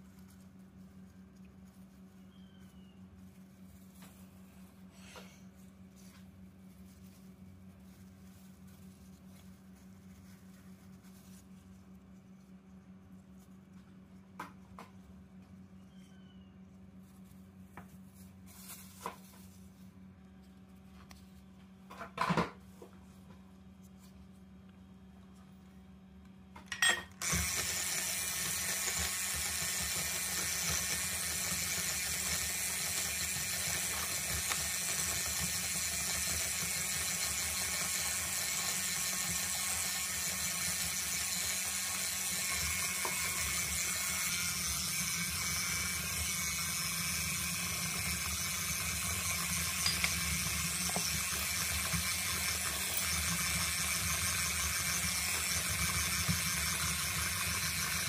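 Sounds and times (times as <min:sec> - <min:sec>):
electric hand mixer running: 0:27.2 - 0:58.0.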